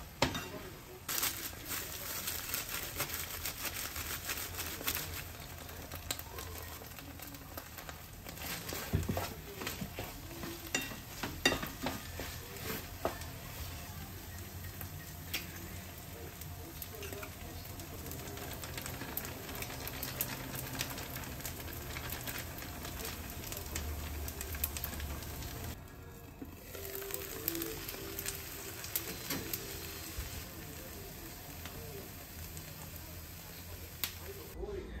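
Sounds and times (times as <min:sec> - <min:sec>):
food sizzling in a frying pan: 0:00.0 - 0:34.6
wooden spoon scraping a pan: 0:08.3 - 0:13.9.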